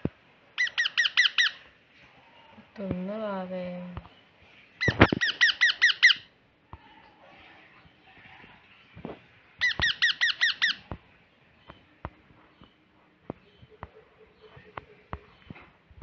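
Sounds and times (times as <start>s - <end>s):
baby parrot begging calls: 0.6s - 1.7s, 4.8s - 6.3s, 9.6s - 10.9s.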